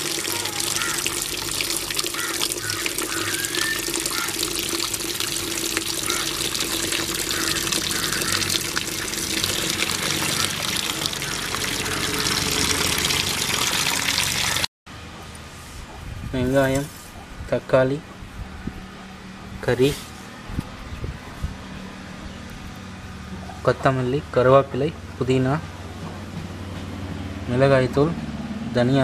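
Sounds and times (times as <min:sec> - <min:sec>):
water running from tap: 0:00.0 - 0:14.7
water splashing on steel plate: 0:00.0 - 0:14.7.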